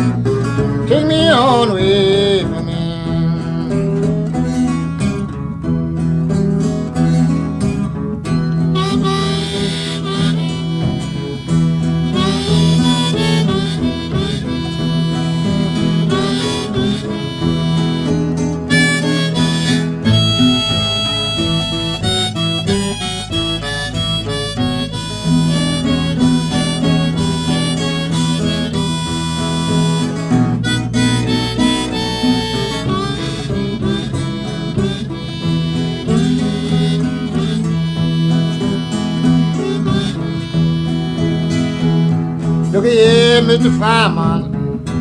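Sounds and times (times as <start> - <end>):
blues harmonica: 0.0 - 45.0
strummed acoustic guitar: 0.0 - 45.0.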